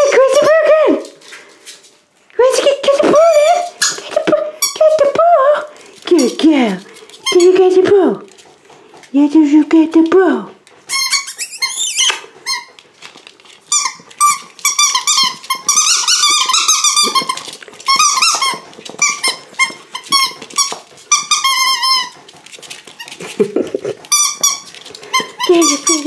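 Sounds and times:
squeaky dog toy squeaking: 3.1s - 5.2s, 7.2s - 7.6s, 10.9s - 12.8s, 13.7s - 22.2s, 24.1s - 26.0s.

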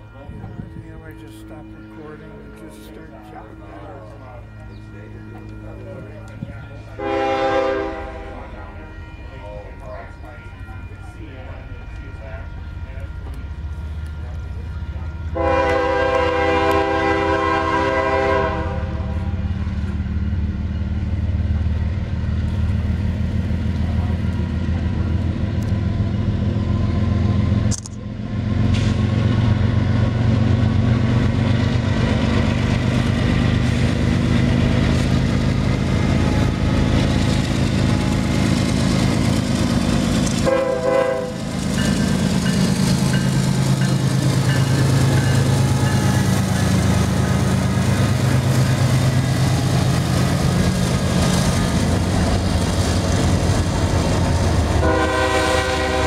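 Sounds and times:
diesel locomotives rumbling past: 0.0s - 56.0s
locomotive horn: 6.4s - 9.4s, 15.0s - 19.6s, 34.9s - 43.1s, 44.3s - 50.0s, 51.2s - 56.0s.

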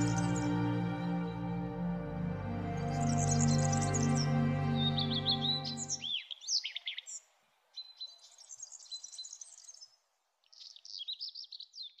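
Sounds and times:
sustained music chord: 0.0s - 6.1s
small birds twittering: 2.8s - 12.0s.

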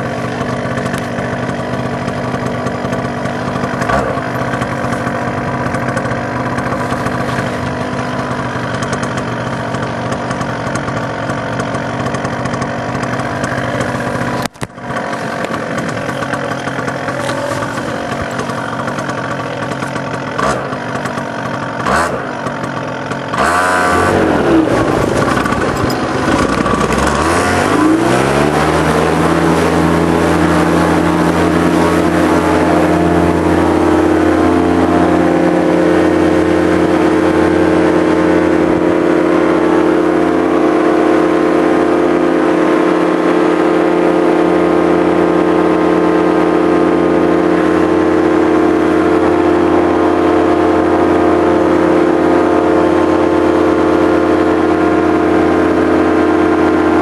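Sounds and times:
model aircraft motor: 0.0s - 42.6s.

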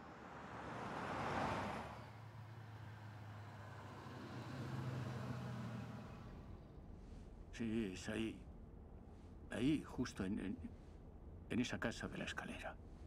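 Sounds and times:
car driving past: 0.1s - 6.5s.

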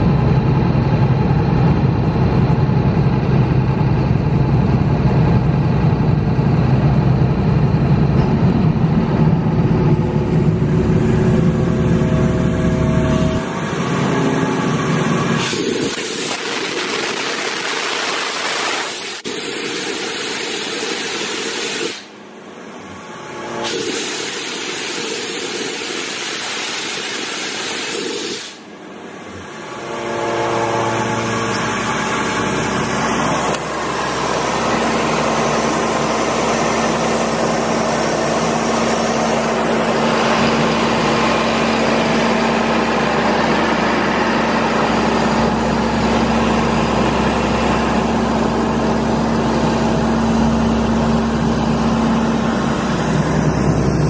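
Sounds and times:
diesel engine humming: 0.0s - 16.0s, 28.8s - 54.0s.

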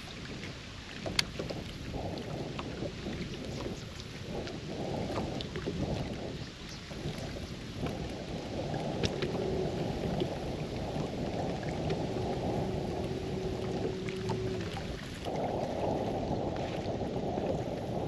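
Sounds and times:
sharp ticks and splashes: 0.0s - 18.0s
wind buffeting microphone: 0.0s - 18.0s
faint steady hum: 8.8s - 18.0s.

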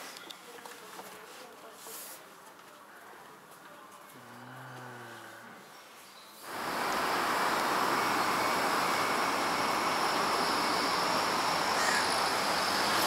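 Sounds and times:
city traffic roar: 6.4s - 13.0s.

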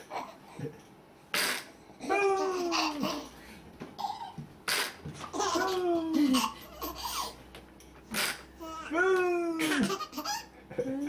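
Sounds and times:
baby laughing: 2.0s - 3.4s, 4.0s - 7.4s, 9.6s - 11.0s.

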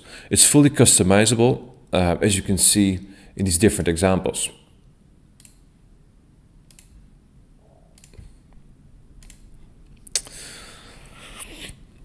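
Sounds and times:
computer mouse clicks: 5.4s - 5.6s, 6.6s - 7.0s, 8.0s - 8.4s, 9.2s - 10.3s.

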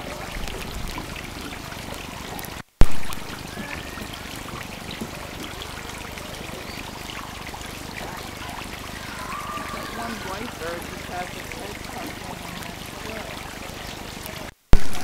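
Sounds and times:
water trickling: 0.0s - 15.0s
sharp loud pop: 2.8s - 3.3s, 14.7s - 15.0s.

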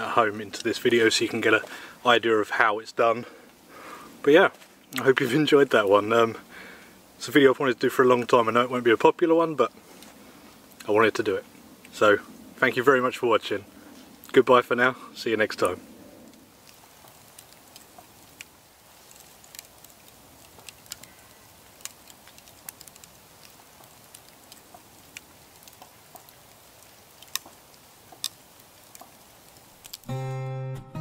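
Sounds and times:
faint hiss: 0.0s - 30.2s
campfire embers crackling: 0.0s - 30.3s
acoustic guitar music: 30.0s - 31.0s.

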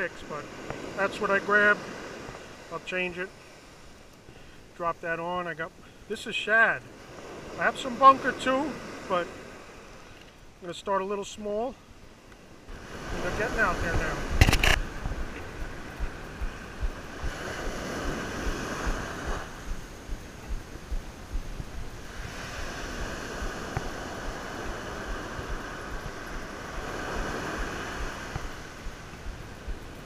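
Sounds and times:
ocean surf breaking on beach: 0.0s - 30.0s
wind buffeting microphone: 12.7s - 30.0s.

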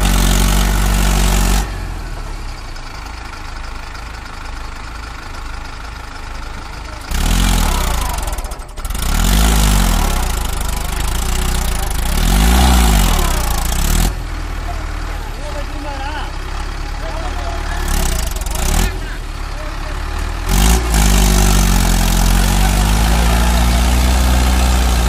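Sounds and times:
tractor diesel engine revving: 0.0s - 25.0s.

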